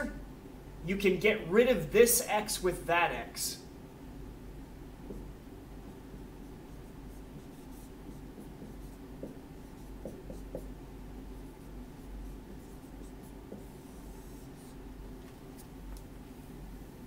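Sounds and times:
marker tapping on board: 5.0s - 5.4s, 7.4s - 10.8s, 11.9s - 14.8s
marker scratching on whiteboard: 5.1s - 16.1s.

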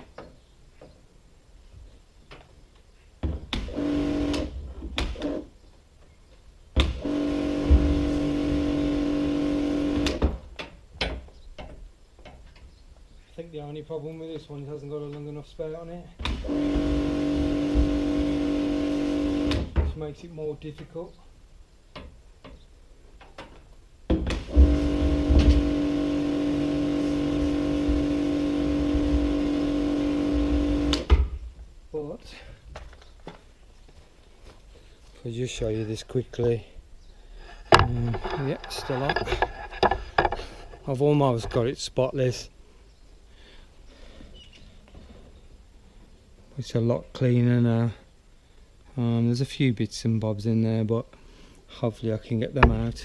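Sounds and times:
pump motor humming: 6.8s - 10.2s, 16.4s - 19.7s, 24.4s - 31.1s.

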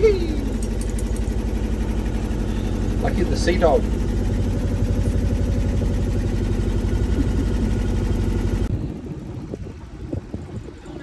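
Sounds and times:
boat engine idling: 0.0s - 11.0s
wind noise on microphone: 8.5s - 11.0s.

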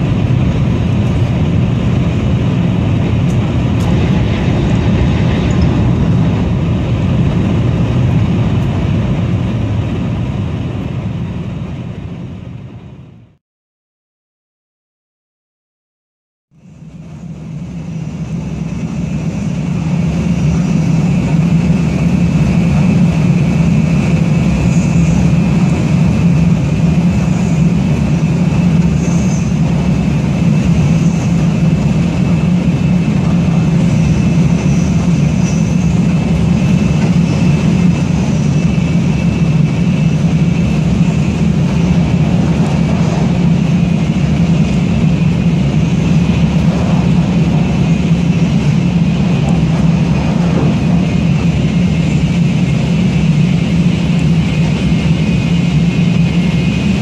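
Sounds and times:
train low rumble: 0.0s - 13.4s, 16.5s - 57.0s
faint high whine: 16.6s - 57.0s.

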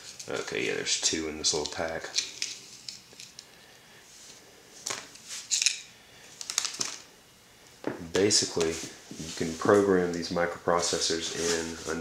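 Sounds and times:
plastic packets crinkling: 4.9s - 7.1s.

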